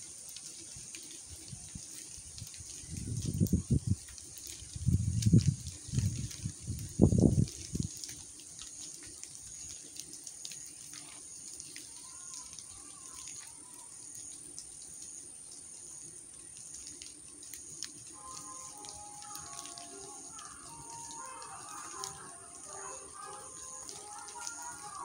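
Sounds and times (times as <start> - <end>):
water dripping through foliage: 0.0 - 25.0
steady high hiss: 12.8 - 25.0
faint wavering call: 18.2 - 25.0.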